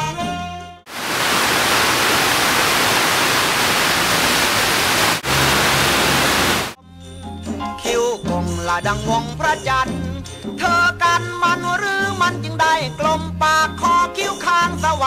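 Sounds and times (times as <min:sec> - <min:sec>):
white-noise static hiss: 0:00.9 - 0:06.8.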